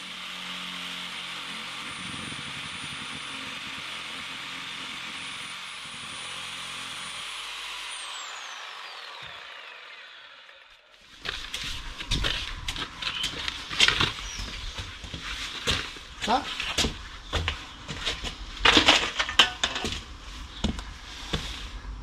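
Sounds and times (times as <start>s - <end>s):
electric power tool whining: 0.0s - 20.0s
loud knocks and clatter: 16.8s - 20.8s.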